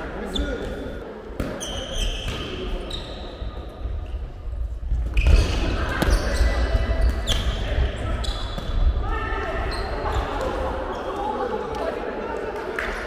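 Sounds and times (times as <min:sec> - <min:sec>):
players' voices: 0:00.0 - 0:13.0
shoe squeaks: 0:01.6 - 0:03.5, 0:05.1 - 0:08.6.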